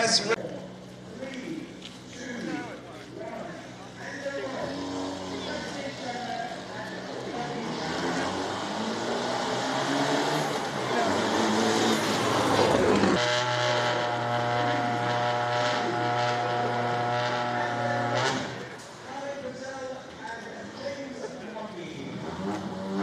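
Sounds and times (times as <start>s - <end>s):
engine crackles and pops: 0.4s - 3.9s, 11.5s - 19.1s
rally car engine running steadily: 3.0s - 19.1s, 22.1s - 23.0s
rally car engine revving: 4.2s - 19.1s, 22.0s - 23.0s.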